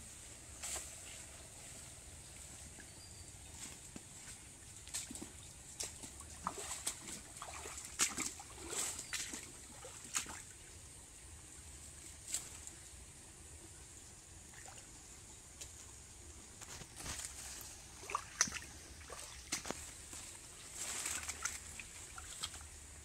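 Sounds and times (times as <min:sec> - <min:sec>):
plants rustling: 0:00.1 - 0:10.4, 0:16.5 - 0:22.8
footsteps wading through water: 0:03.7 - 0:10.6, 0:16.6 - 0:23.0.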